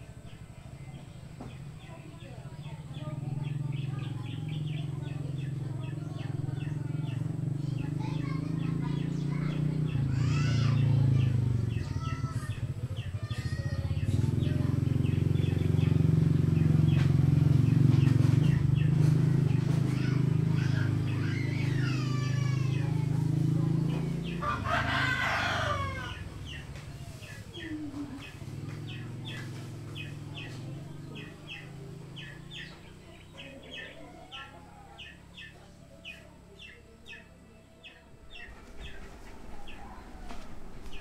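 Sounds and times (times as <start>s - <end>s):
rooster crowing: 24.4s - 26.3s.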